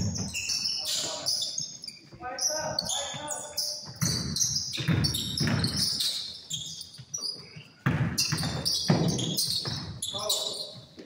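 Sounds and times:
basketball bouncing: 0.0s - 0.6s, 2.8s - 6.3s, 7.0s - 10.1s
shoe squeaks: 0.0s - 11.0s.

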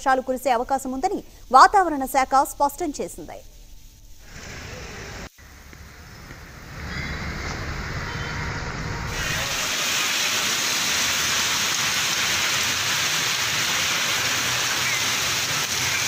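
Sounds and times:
floodwater rushing: 9.1s - 16.0s.

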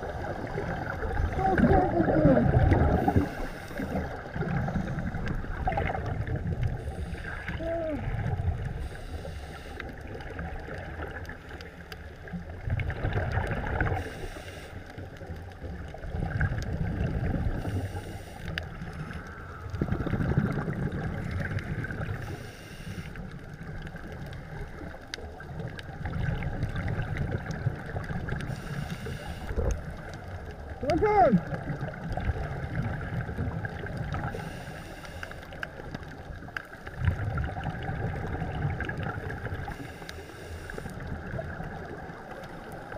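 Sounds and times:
exhaled bubbles rumbling underwater: 0.0s - 42.9s
hissing regulator breaths: 3.0s - 5.2s, 8.8s - 10.0s, 14.0s - 14.9s, 17.6s - 19.1s, 22.2s - 23.2s, 28.5s - 29.7s, 34.3s - 35.6s.

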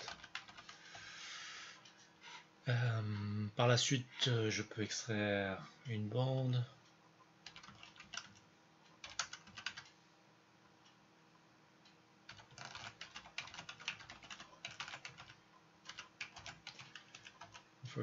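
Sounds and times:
keyboard keys clicking: 0.0s - 0.7s, 7.5s - 8.4s, 9.0s - 9.9s, 12.3s - 17.6s.

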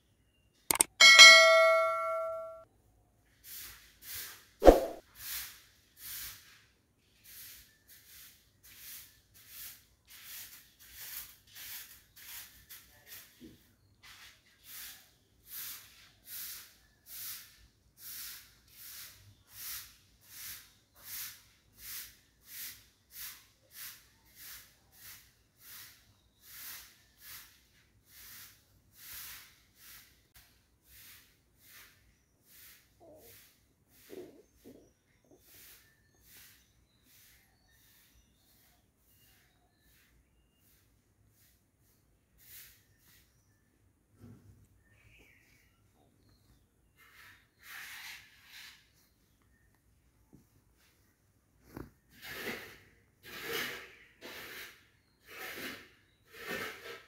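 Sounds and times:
bell chime: 0.7s - 2.6s
sharp click: 0.7s - 2.6s.

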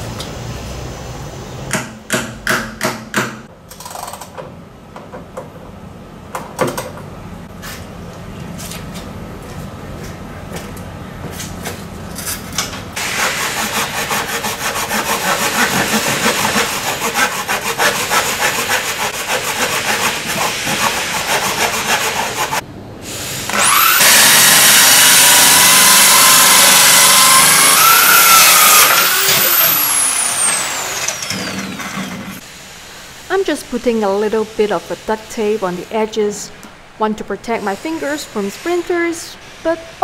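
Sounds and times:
hand saw cutting wood: 13.0s - 22.6s, 23.5s - 32.4s
power drill with hole saw whining: 23.3s - 32.4s.

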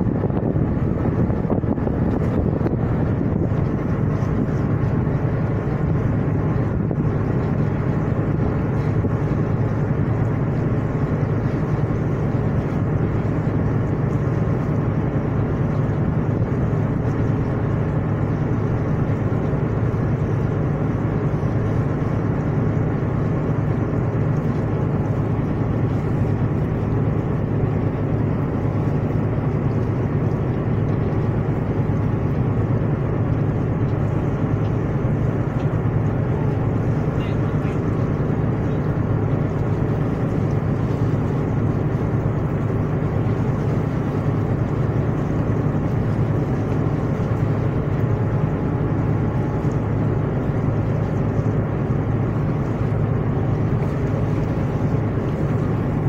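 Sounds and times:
ship engine droning: 0.0s - 56.0s.

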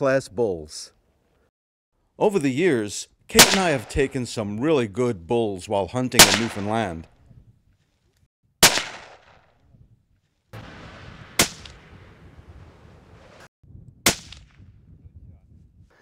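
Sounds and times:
sharp bangs with echo: 3.4s - 4.2s, 6.2s - 7.0s, 8.6s - 9.5s, 10.6s - 12.5s, 14.0s - 14.6s.

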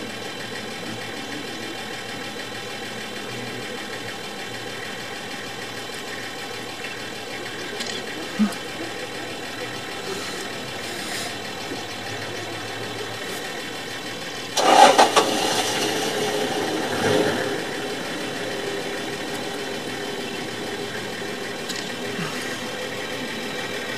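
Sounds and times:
vehicle engine idling: 0.0s - 23.9s
loud burst of noise: 14.3s - 23.9s.

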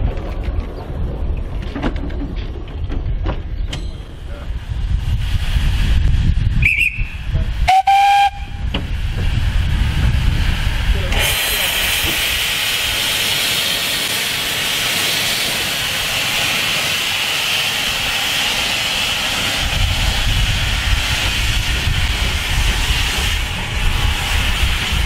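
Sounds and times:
low rumble: 0.0s - 12.9s
steam hissing from locomotive: 4.1s - 25.0s.

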